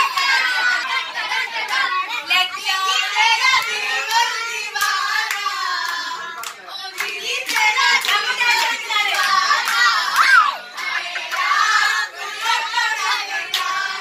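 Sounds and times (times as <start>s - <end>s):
girls singing together: 0.0s - 14.0s
hands clapping: 3.5s - 11.6s, 12.4s - 13.8s.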